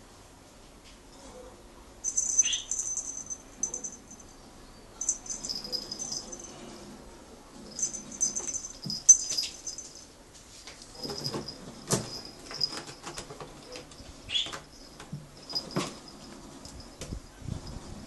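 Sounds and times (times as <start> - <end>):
faint high-pitched chirping: 2.0 - 6.6.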